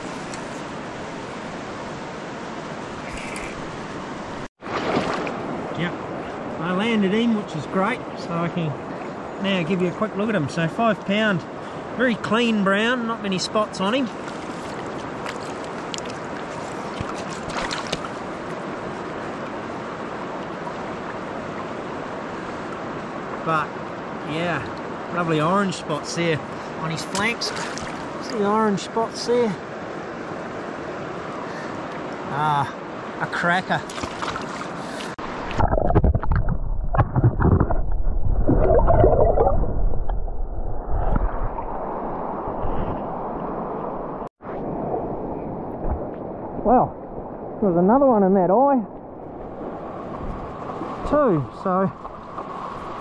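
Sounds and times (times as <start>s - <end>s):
flowing river water: 0.0s - 53.0s
water gurgling underwater: 35.4s - 42.9s.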